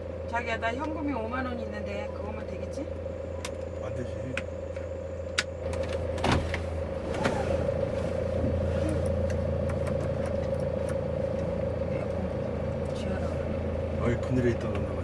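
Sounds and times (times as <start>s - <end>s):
van engine and road hum: 0.0s - 15.0s.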